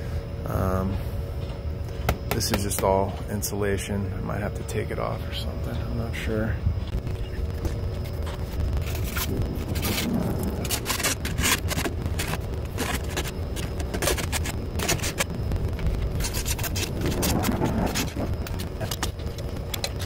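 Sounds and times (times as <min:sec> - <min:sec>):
low rumble: 0:06.6 - 0:20.0.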